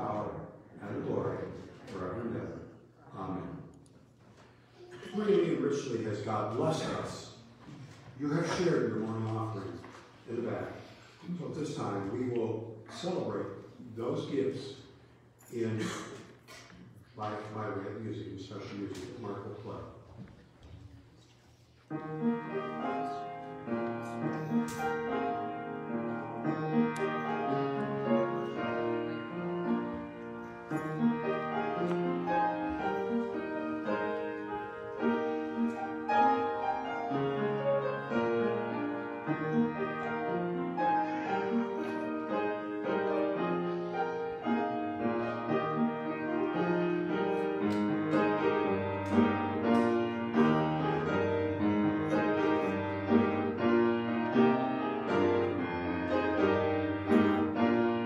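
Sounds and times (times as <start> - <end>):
solo piano piece: 21.9 - 58.0.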